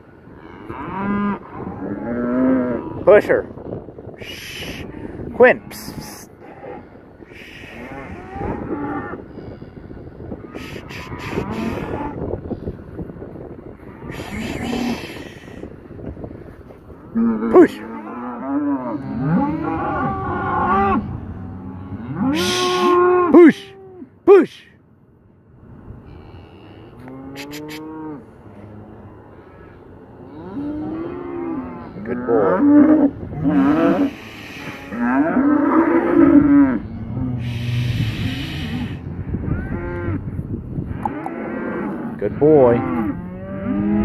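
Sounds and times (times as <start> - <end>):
cow mooing: 5.5 - 9.8, 10.4 - 12.3, 14.0 - 15.7, 17.2 - 24.1, 26.0 - 29.0, 30.3 - 40.2, 40.9 - 44.0
man shouting: 17.5 - 17.9, 22.4 - 24.7
breathy hiss: 34.0 - 35.0, 37.4 - 39.1.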